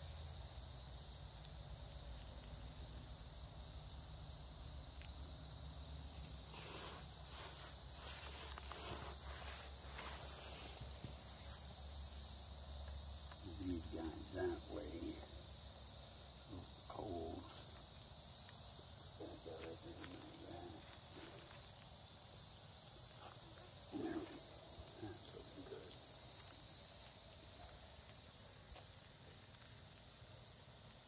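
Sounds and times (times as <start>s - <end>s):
campfire crackling: 0.0s - 31.0s
insects chirring: 0.0s - 31.0s.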